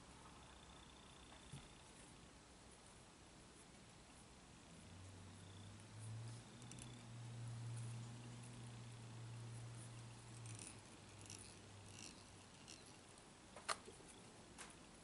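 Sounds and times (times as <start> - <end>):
faint low hum: 0.0 - 15.0
fingers rustling thread: 5.7 - 15.0.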